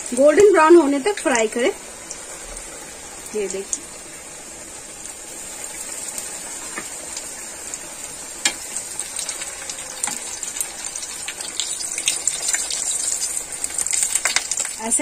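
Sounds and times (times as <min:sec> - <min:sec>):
deep-frying sizzle with pops: 0:00.0 - 0:15.0.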